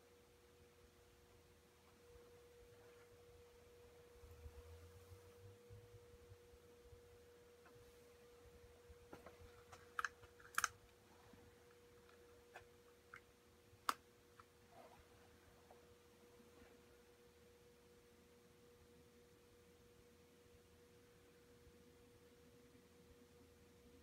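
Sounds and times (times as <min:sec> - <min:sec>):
faint high hum: 0:00.0 - 0:24.0
small sharp clicks: 0:09.7 - 0:11.0.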